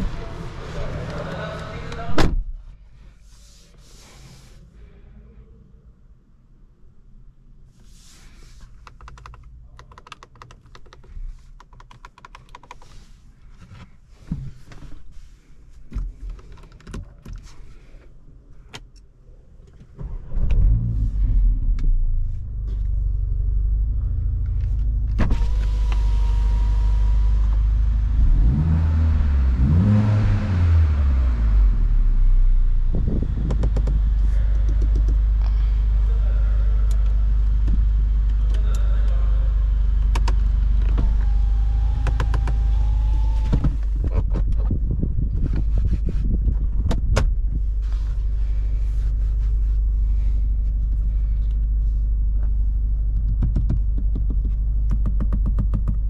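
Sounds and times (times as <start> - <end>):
car engine starting and idling: 0.0 - 2.8, 19.8 - 56.0.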